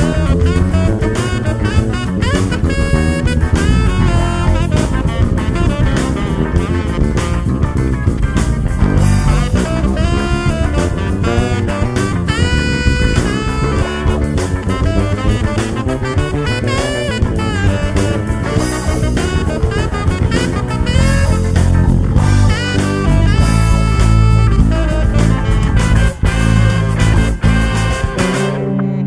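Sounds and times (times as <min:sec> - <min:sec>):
drum kit beat: 0:00.0 - 0:28.7
electric bass guitar fingerstyle: 0:00.0 - 0:29.0
sliding lead melody: 0:00.0 - 0:29.0.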